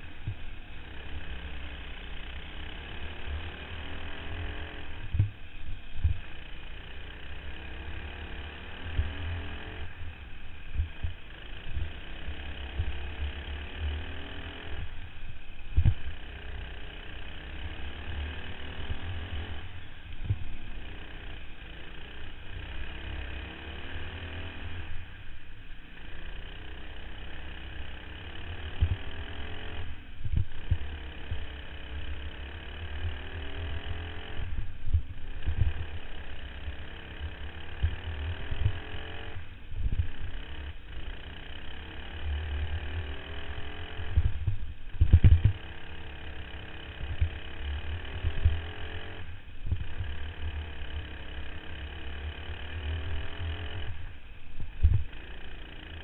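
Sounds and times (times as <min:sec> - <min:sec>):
kart engine at full throttle: 0:00.0 - 0:56.0
wind thumps on microphone: 0:44.2 - 0:45.6, 0:54.7 - 0:55.1.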